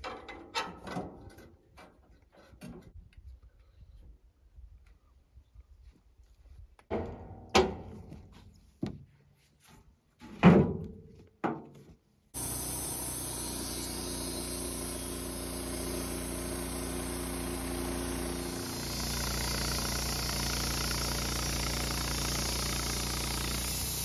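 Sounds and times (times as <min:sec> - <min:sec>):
sharp clunks: 0:06.9 - 0:09.0
band sawmill cutting log: 0:12.4 - 0:24.0.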